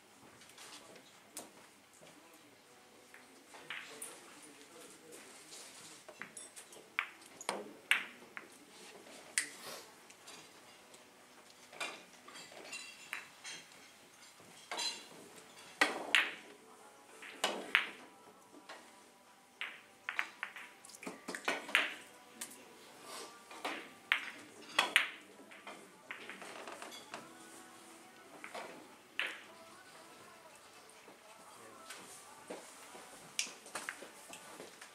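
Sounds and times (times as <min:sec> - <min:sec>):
billiard balls clicking: 0:19.6 - 0:22.6, 0:23.6 - 0:27.3, 0:28.3 - 0:29.5.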